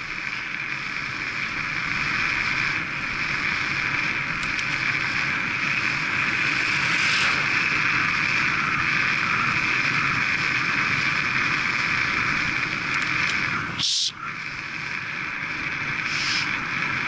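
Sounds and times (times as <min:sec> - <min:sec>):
wind and tyre noise: 0:00.0 - 0:17.0
car passing whoosh: 0:06.2 - 0:07.8.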